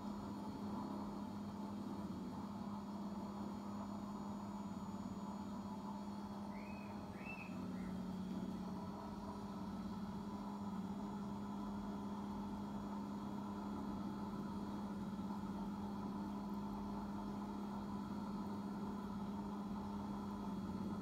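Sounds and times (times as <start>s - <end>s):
machine hum: 0.0s - 12.8s.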